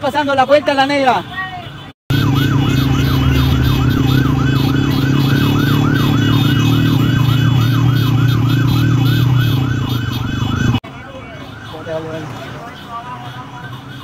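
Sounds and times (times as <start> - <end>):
siren rapid yelp: 2.1 - 14.0.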